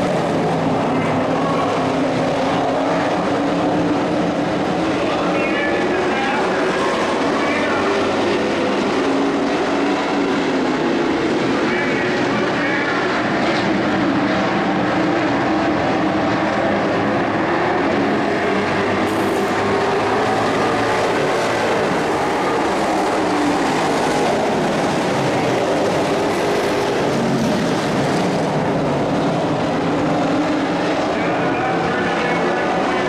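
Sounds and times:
race truck engines: 0.0 - 33.0.

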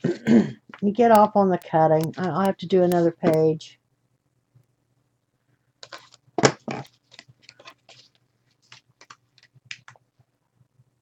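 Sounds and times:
paper rustling and crinkling: 5.8 - 9.9.

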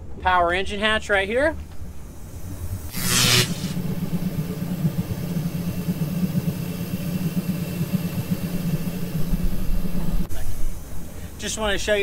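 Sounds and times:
electric motor running: 1.9 - 10.9.

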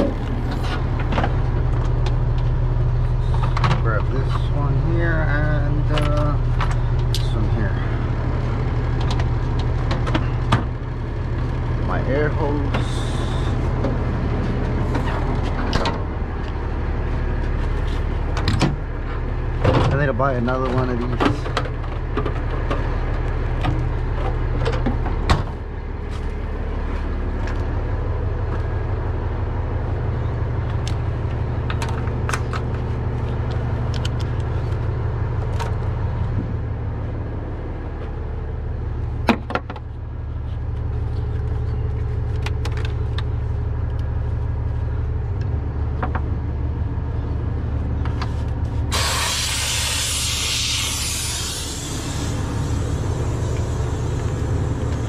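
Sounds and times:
diesel truck engine idling: 0.0 - 55.0
loud hiss: 48.9 - 54.5.

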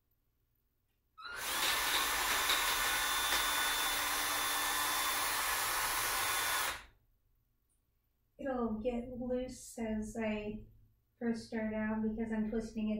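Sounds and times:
power drill running: 1.2 - 6.9.

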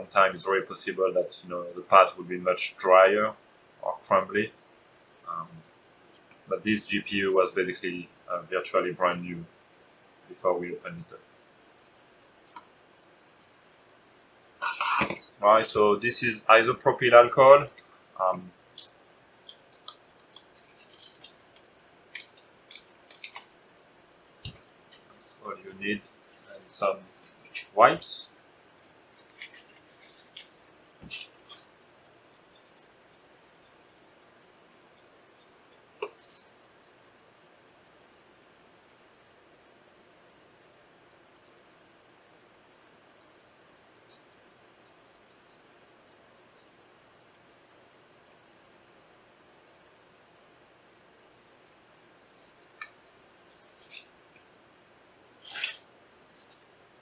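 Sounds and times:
paper wipe rubbing circuit board: 18.8 - 23.5, 25.2 - 31.7, 32.3 - 34.3, 35.0 - 37.1, 52.0 - 54.6, 55.4 - 56.6
paper towel rustling: 26.3 - 27.9, 28.9 - 31.7, 52.3 - 54.6.

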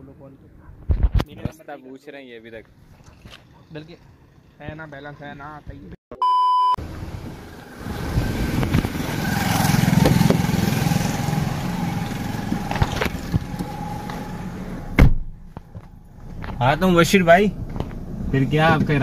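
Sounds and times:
street noise: 0.0 - 6.0, 6.8 - 19.0
vehicle engine running: 6.8 - 19.0.

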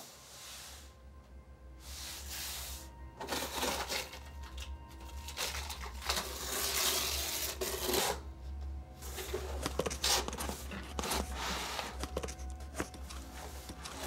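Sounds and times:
low music drone: 0.0 - 14.0
cardboard packaging rustling: 3.2 - 8.2, 9.0 - 14.0.

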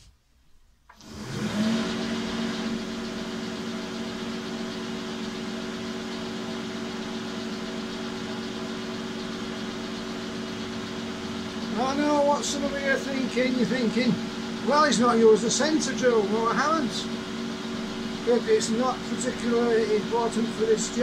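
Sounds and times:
bench lathe motor humming: 0.9 - 21.0.

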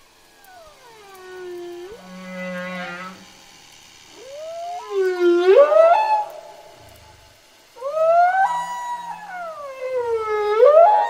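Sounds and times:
whale calls: 0.3 - 11.0.

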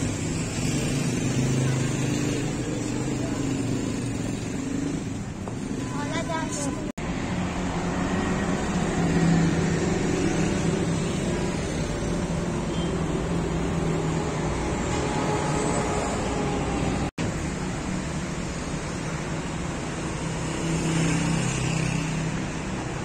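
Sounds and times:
expressway traffic passing: 0.0 - 23.0.

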